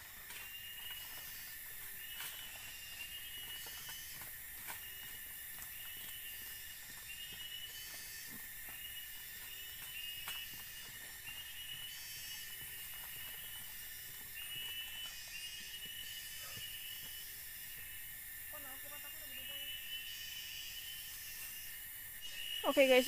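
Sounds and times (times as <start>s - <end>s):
taps and rustles clearing ground: 0.0s - 17.2s
high insect drone: 0.0s - 23.0s.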